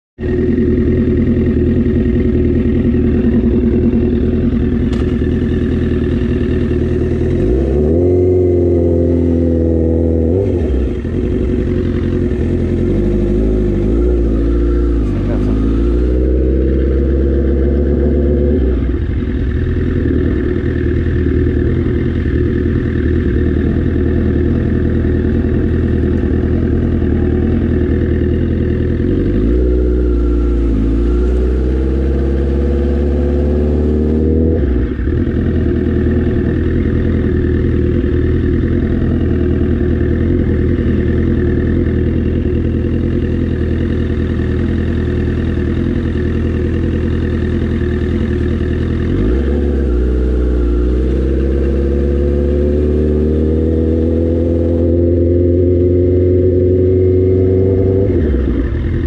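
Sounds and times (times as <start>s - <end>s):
motorcycle engine running: 0.2s - 59.0s.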